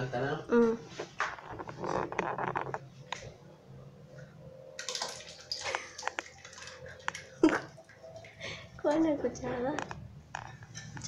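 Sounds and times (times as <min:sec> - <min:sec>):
corn splashing into a pot: 0:04.8 - 0:06.6.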